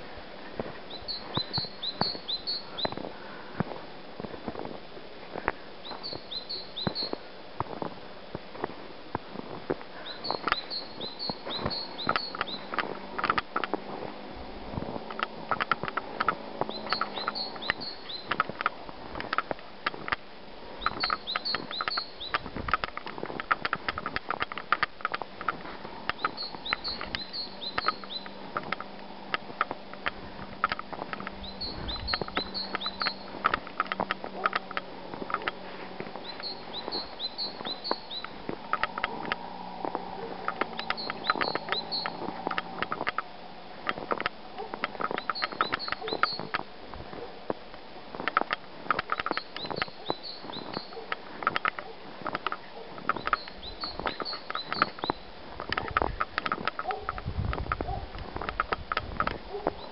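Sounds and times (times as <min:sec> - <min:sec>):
footsteps crunching in snow: 0:00.0 - 0:59.9
small bird singing: 0:00.8 - 0:03.1, 0:05.8 - 0:07.2, 0:10.0 - 0:13.3, 0:16.6 - 0:18.6, 0:20.8 - 0:22.9, 0:26.1 - 0:28.8, 0:30.6 - 0:34.8, 0:36.2 - 0:39.4, 0:40.1 - 0:43.2, 0:44.9 - 0:46.6, 0:49.0 - 0:51.7, 0:52.5 - 0:57.1, 0:59.6 - 0:59.9.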